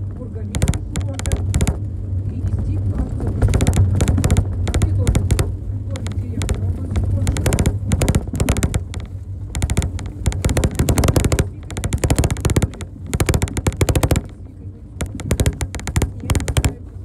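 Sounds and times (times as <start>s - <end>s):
rattling clatter: 0.0s - 17.0s
steady low hum: 0.0s - 17.0s.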